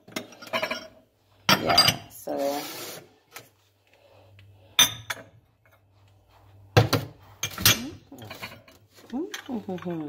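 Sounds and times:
glass and ceramic dishes clinking: 0.1s - 2.1s, 4.8s - 5.4s.

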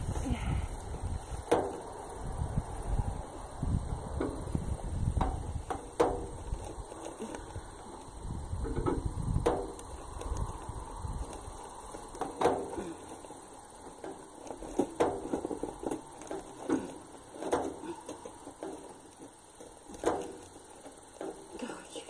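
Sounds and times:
wind rumble on microphone: 0.0s - 16.6s
knocks and rattles of a trap: 0.9s - 2.0s, 4.1s - 22.0s.

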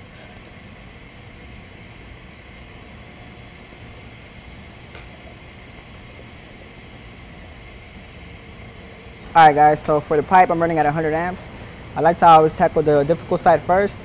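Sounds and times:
welding arc hissing: 3.9s - 14.0s.

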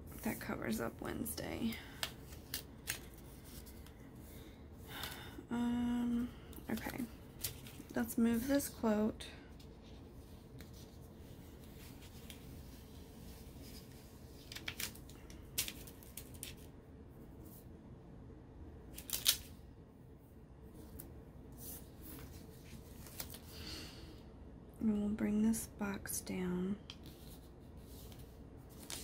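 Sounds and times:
paper rustling: 6.7s - 8.6s, 9.5s - 16.7s, 20.8s - 23.5s, 27.0s - 29.0s.

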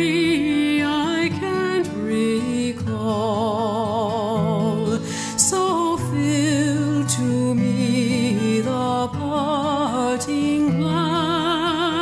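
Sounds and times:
slow music with vibrato: 0.0s - 12.0s.

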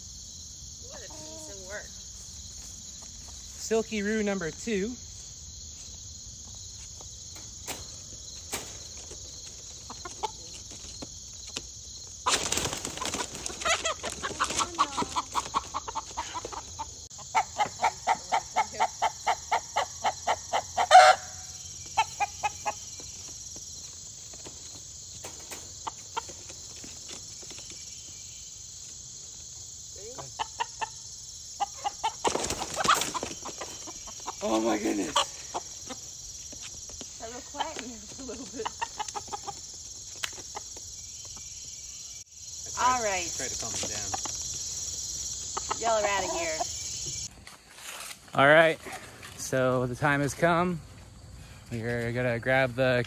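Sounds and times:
crickets chirring: 0.0s - 53.0s
roosters flapping wings: 8.6s - 16.7s, 32.2s - 33.9s
rooster clucking and squawking: 13.1s - 22.8s, 30.2s - 31.0s, 31.6s - 34.4s, 38.5s - 39.6s.

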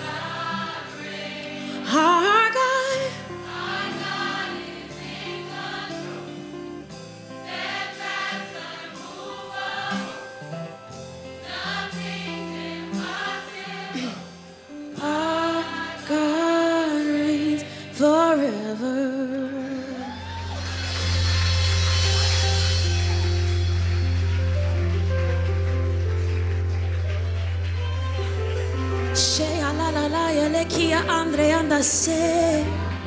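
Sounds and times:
woman singing gospel: 0.0s - 4.3s, 15.0s - 20.6s, 29.2s - 33.0s
backing singers: 0.0s - 6.7s, 7.4s - 10.5s, 11.4s - 18.2s, 27.7s - 33.0s
band with acoustic guitar: 0.0s - 33.0s.

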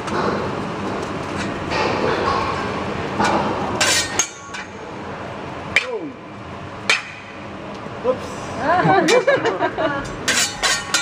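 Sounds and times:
metal spatulas clinking: 10.3s - 11.0s.

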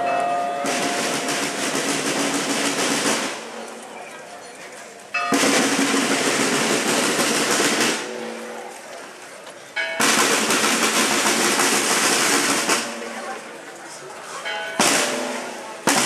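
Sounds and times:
snare drum rolls: 0.6s - 3.6s, 5.3s - 8.4s, 10.0s - 13.2s, 14.8s - 16.0s.

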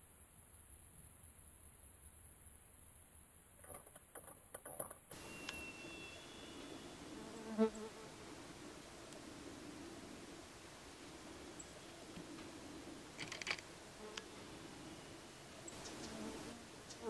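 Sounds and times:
outdoor hiss: 5.1s - 17.0s
flying insect buzzing: 6.6s - 8.7s, 15.7s - 17.0s
faint clicks: 11.6s - 14.3s.

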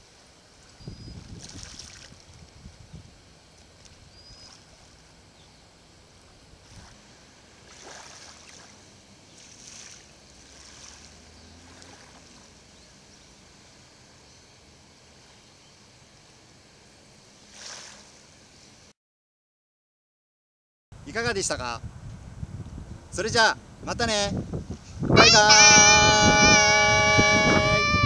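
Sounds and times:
water lapping at shore: 1.2s - 2.6s, 6.2s - 12.6s, 17.4s - 18.2s
soft splashes: 1.4s - 2.3s, 7.6s - 12.5s.

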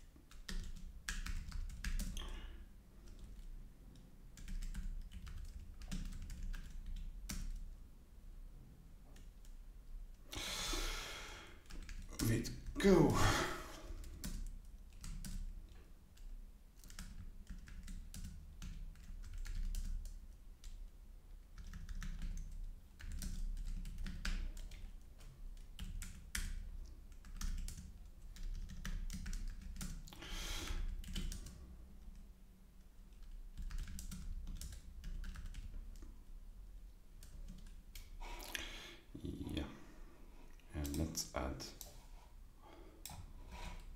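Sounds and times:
keyboard typing: 0.3s - 2.3s, 3.0s - 7.7s, 14.0s - 15.6s, 16.2s - 20.8s, 21.5s - 30.2s, 30.9s - 32.2s, 33.1s - 36.1s.

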